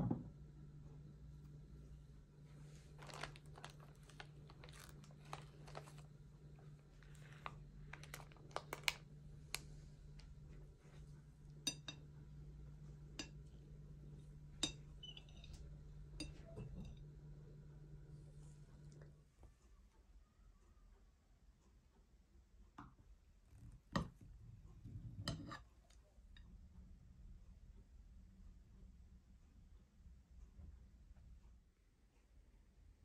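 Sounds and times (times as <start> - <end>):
steady low hum: 0.0 - 19.6
paper crinkling: 2.6 - 9.8.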